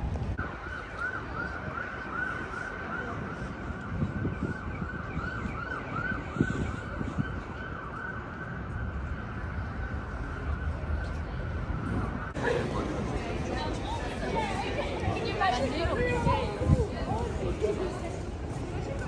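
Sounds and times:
emergency siren yelping: 0.4 - 12.5.

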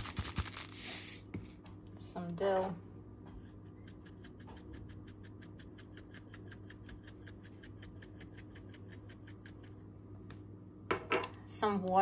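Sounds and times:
spice shaker rattling: 0.0 - 1.1
steady low hum: 0.0 - 12.0.

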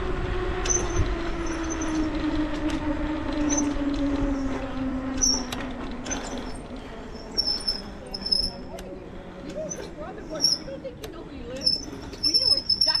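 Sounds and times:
bicycle rolling on concrete: 0.0 - 13.0.

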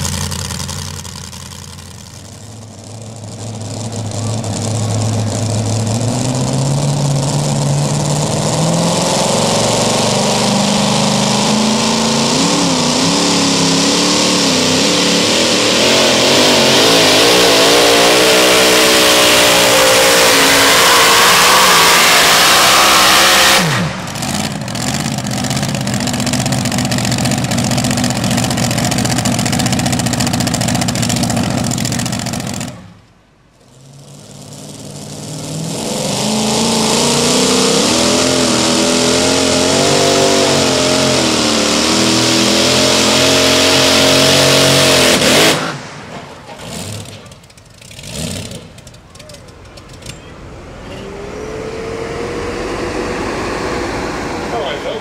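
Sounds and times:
engine idling: 0.0 - 8.2, 23.8 - 33.6, 48.6 - 51.1
engine winding down: 0.0 - 33.1, 33.7 - 55.0
loud steady noise: 1.8 - 32.9, 51.2 - 55.0
supercharged engine revving hard: 3.5 - 32.8, 34.0 - 47.2, 47.8 - 48.8, 50.8 - 55.0.

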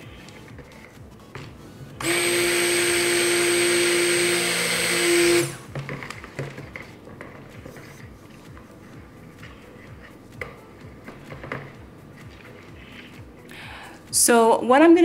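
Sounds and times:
stick blender motor hum: 2.0 - 5.7.

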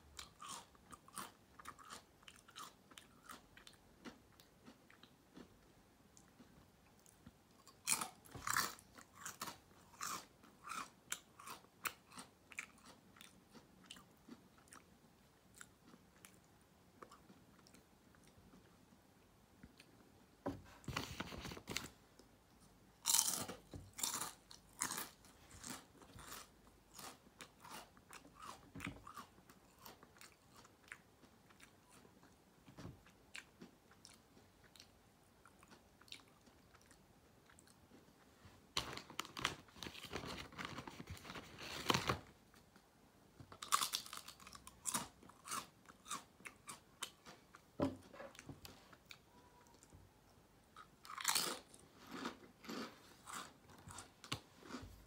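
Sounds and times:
soft chewing: 0.1 - 55.0
crunching potato chips: 0.2 - 5.5, 7.0 - 14.9, 23.0 - 32.1, 43.6 - 47.5, 50.8 - 54.8.

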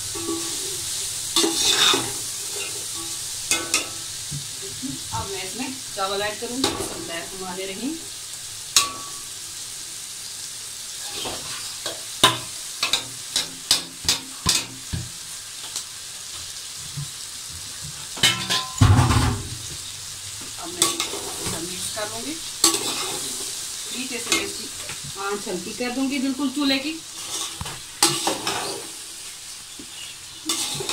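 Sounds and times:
food sizzling in a pot: 0.0 - 30.9
metal spatula scraping and clinking: 0.1 - 4.0, 18.2 - 18.8, 20.8 - 21.7, 22.6 - 23.4, 27.2 - 29.0, 30.4 - 30.9.

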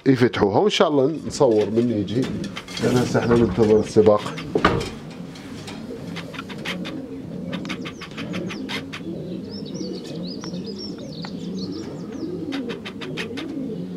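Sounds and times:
pigeons cooing: 0.9 - 13.9
small bird chirping: 6.0 - 13.9.

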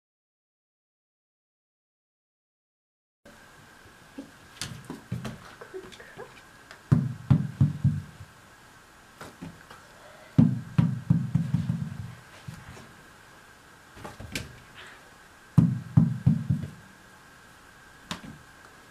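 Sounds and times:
ball bouncing on hardwood floor: 6.9 - 8.2, 10.4 - 12.2, 15.6 - 16.8.

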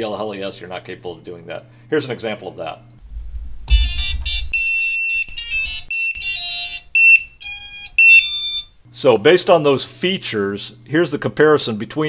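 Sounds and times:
low handling bump: 3.0 - 4.6
motors beeping a stepped tune: 3.7 - 8.7.

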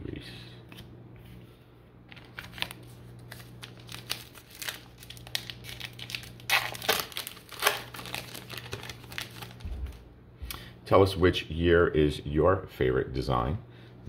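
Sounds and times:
plastic wrapper crinkling and tearing: 2.1 - 10.0.

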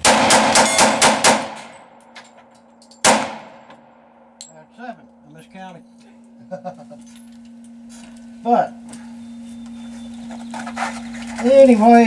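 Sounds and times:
pistol shots: 0.0 - 2.0, 3.0 - 3.9.

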